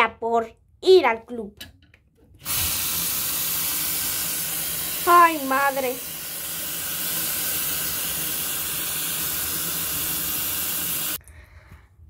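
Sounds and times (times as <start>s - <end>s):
tap water running into a sink: 2.4s - 11.2s.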